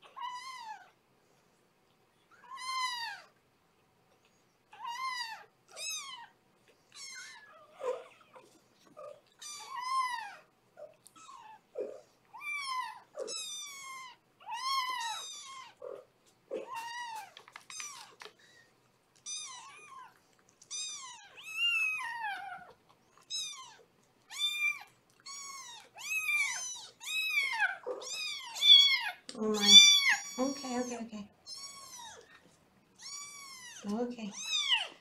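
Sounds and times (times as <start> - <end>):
kitten meowing in distress: 24.3 - 30.8.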